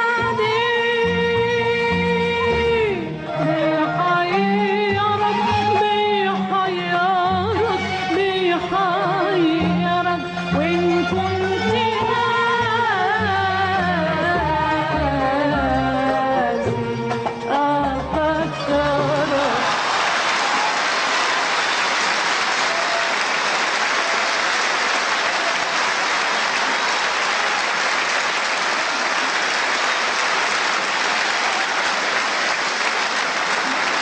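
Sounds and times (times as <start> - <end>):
person singing: 0.0 - 19.8
audience applauding: 19.4 - 34.0.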